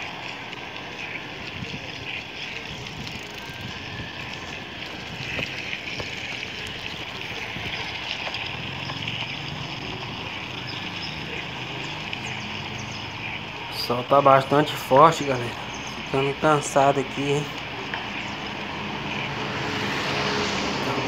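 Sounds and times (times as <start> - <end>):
bicycle tyre noise: 0.0 - 21.0
wind rushing on microphone: 1.2 - 8.7.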